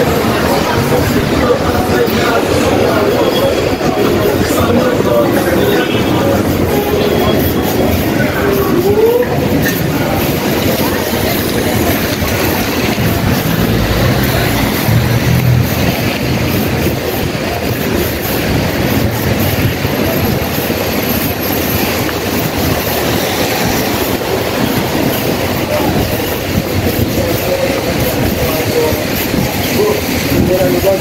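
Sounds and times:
heavy rain: 0.0 - 31.0
wind: 0.0 - 31.0
low rumble: 11.4 - 17.7.

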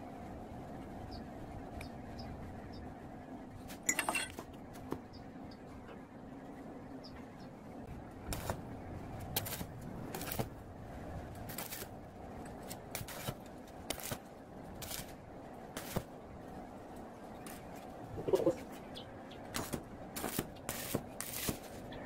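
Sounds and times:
arc welder crackling: 8.1 - 22.0.

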